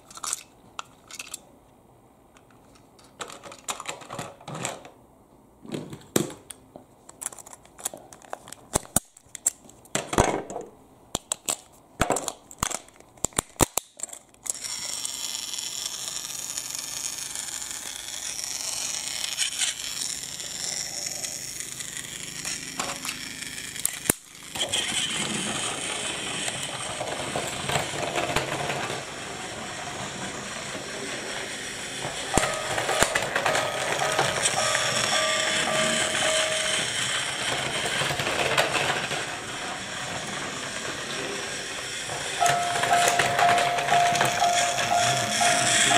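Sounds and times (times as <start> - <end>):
plastic toy trains clicking: 0.0 - 1.4, 2.4 - 5.0, 6.2 - 45.9
toy train motor whirring: 13.3 - 45.9.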